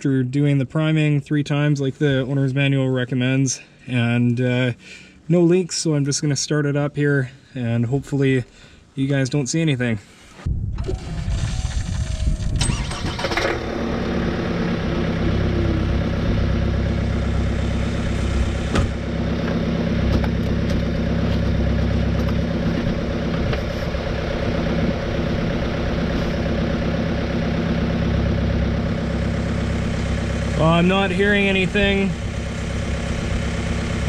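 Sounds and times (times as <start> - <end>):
car engine cranking and idling: 10.8 - 34.0.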